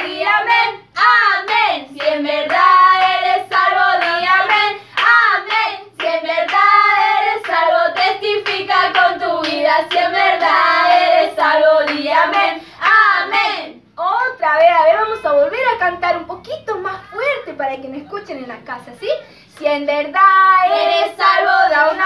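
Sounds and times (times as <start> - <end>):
women singing together: 0.0 - 15.5, 19.4 - 22.0
hand clapping: 1.0 - 11.1.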